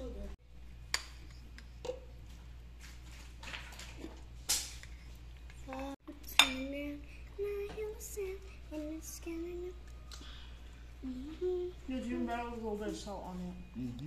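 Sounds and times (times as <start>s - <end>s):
person humming: 11.0s - 11.9s.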